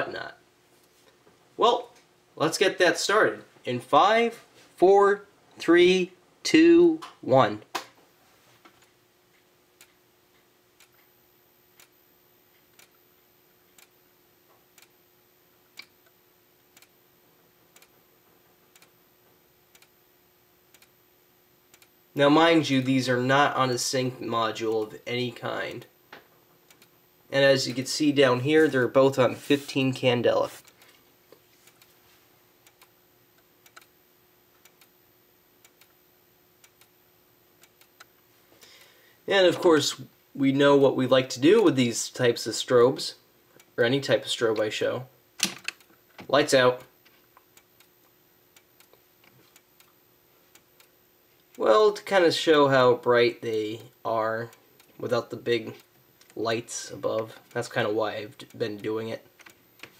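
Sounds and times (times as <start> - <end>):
faint steady hum: 0.0 - 59.9
strobe ticks: 9.3 - 17.0, 17.7 - 18.0, 18.7 - 19.0, 19.6 - 22.3, 26.6 - 27.1, 32.6 - 38.2, 46.6 - 52.1, 53.4 - 59.9.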